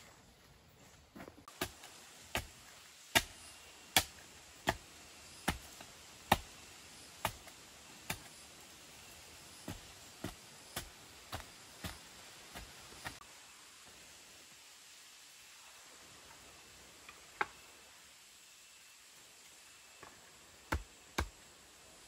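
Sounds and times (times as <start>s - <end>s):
shovel chopping into packed earth: 1.5s - 6.5s.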